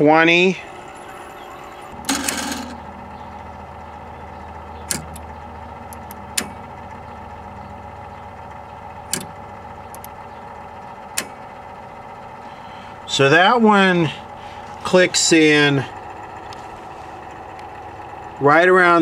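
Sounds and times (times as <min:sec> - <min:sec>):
television hum: 0:00.0 - 0:19.0
relays clicking: 0:04.4 - 0:07.1, 0:08.3 - 0:11.7.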